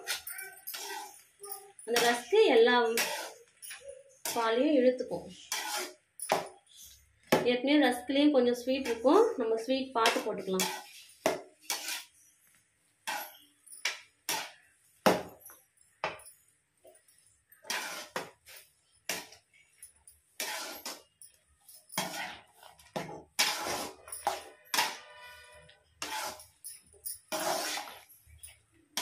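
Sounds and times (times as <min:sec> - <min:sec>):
metal spatula scraping a pan: 0:00.0 - 0:07.0, 0:10.0 - 0:12.4, 0:13.0 - 0:13.6, 0:14.2 - 0:14.7, 0:17.6 - 0:19.4, 0:20.3 - 0:29.0.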